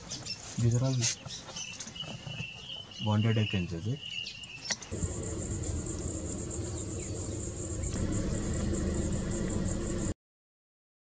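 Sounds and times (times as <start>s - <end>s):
low steady hum: 4.9s - 10.2s.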